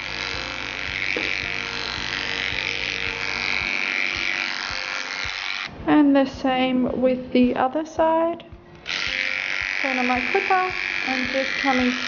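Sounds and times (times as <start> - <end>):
electric clipper buzzing: 0.0 - 5.8, 8.8 - 12.0.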